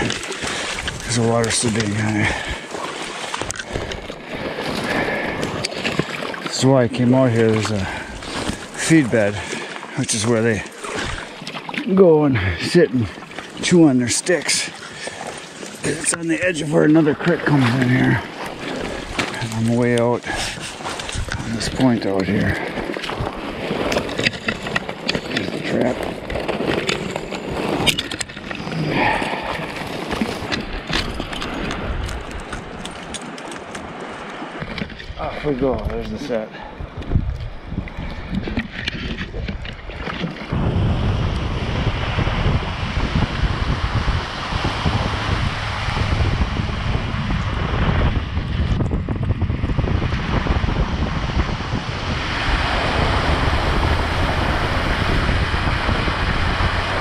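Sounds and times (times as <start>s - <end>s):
wind buffeting microphone: 0.0s - 33.2s, 33.8s - 57.0s
water moving around legs: 0.0s - 35.5s
branches rustling: 7.8s - 10.0s.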